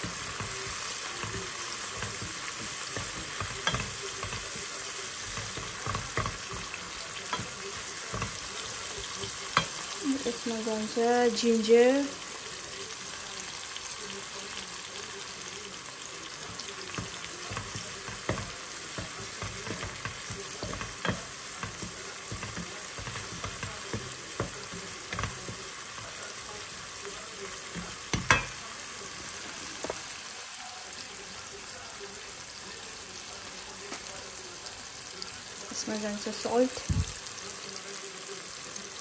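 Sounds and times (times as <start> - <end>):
spatula scraping and knocking pan: 0.0 - 10.0, 16.4 - 28.6
spices sizzling in hot oil: 0.0 - 39.0.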